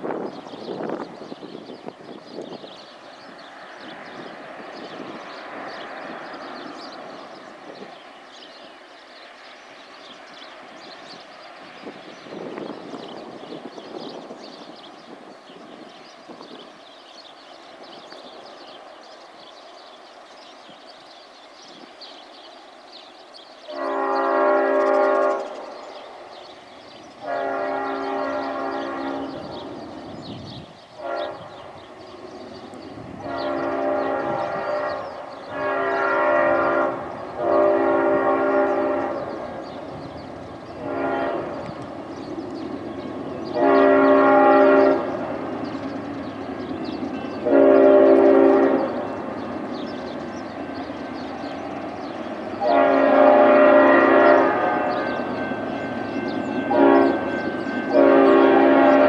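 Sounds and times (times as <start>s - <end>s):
train rumbling: 0.0s - 59.0s
train air horn blasts: 23.6s - 26.0s, 27.2s - 29.7s, 31.0s - 31.9s, 33.1s - 40.0s, 40.7s - 41.8s, 43.4s - 45.7s, 46.8s - 49.9s, 51.4s - 59.0s.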